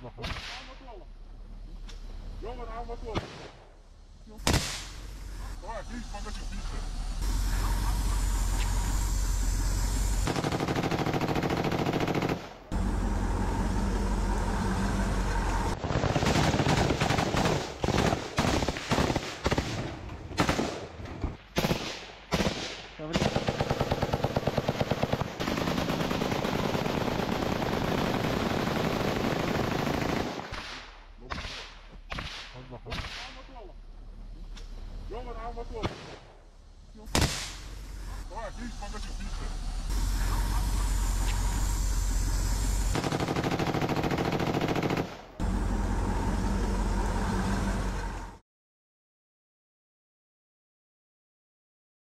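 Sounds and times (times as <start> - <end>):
automatic rifle fire: 10.2 - 12.6, 15.9 - 20.9, 21.6 - 30.8, 43.0 - 45.3.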